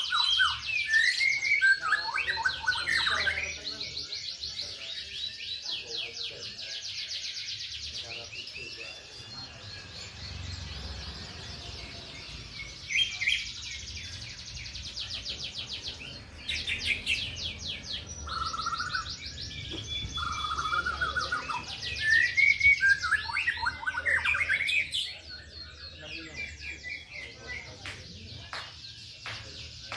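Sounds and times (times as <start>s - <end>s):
canaries singing trills: 0.0s - 29.9s.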